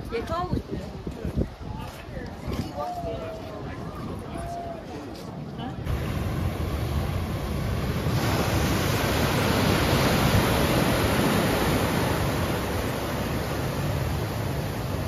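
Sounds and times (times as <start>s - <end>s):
wind noise on microphone: 0.0s - 4.8s
ocean surf washing in: 5.8s - 15.0s.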